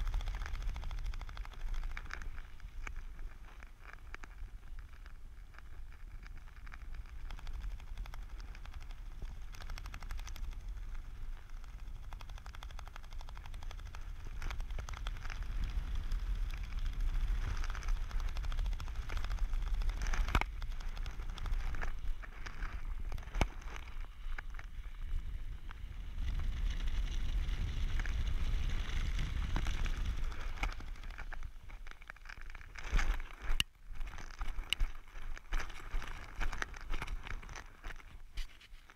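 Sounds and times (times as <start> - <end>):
wind buffeting microphone: 6.7 - 31.8
gear and fabric knocking and rustling: 27.9 - 38.9.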